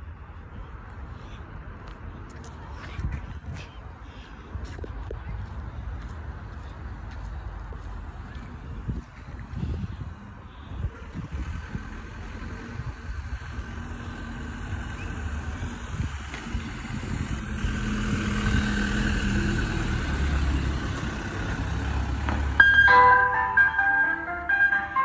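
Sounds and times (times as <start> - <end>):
van engine driving past: 11.2 - 25.0
ice cream van chimes tune: 22.6 - 25.0.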